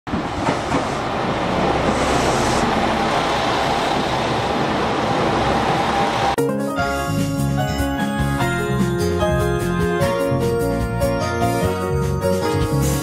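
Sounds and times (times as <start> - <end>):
diesel train rolling past: 0.1 - 6.4.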